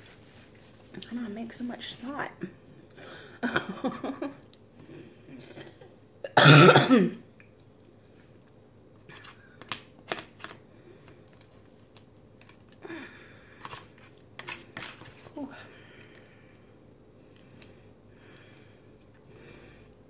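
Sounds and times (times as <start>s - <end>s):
person coughing: 6.2s - 7.2s.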